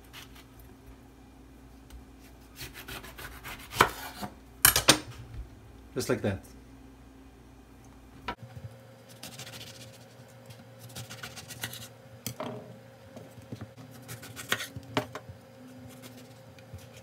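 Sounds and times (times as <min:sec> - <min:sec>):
knife slicing eggplant: 0:02.2 - 0:04.4, 0:13.8 - 0:14.8.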